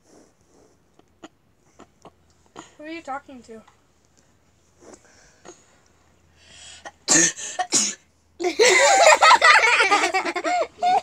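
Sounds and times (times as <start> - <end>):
child sneezing: 7.1 - 8.0
child laughing: 8.4 - 11.0.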